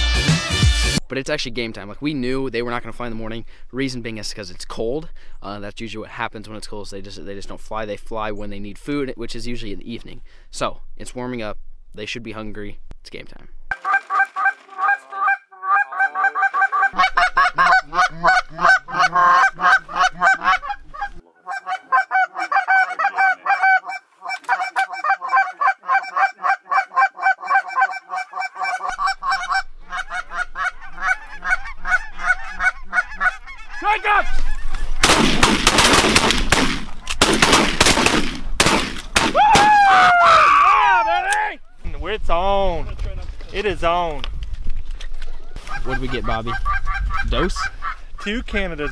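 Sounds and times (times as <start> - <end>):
geese honking: 13.7 - 35.0, 45.6 - 48.1
shotgun blasts: 35.0 - 39.7.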